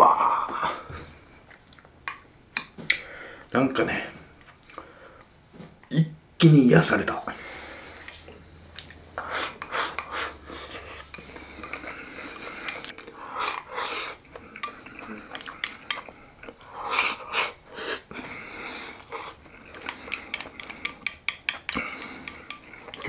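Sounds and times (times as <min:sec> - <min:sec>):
chopsticks scraping porcelain bowl: 0:09.2 - 0:16.2, 0:19.0 - 0:23.0.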